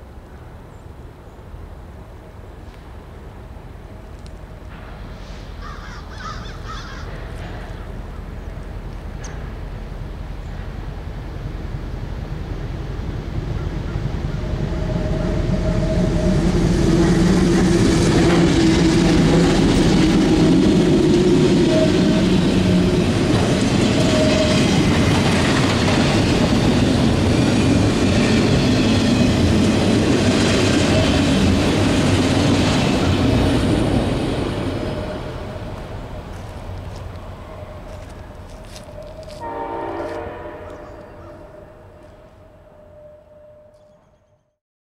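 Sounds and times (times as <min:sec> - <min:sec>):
locomotive engine drone: 0:07.1 - 0:44.1
train cars clattering on rails: 0:15.0 - 0:35.2.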